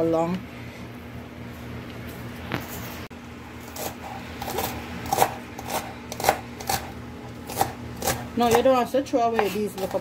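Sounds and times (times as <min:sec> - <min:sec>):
knife chopping on plastic board: 0:04.5 - 0:06.9, 0:07.5 - 0:10.0.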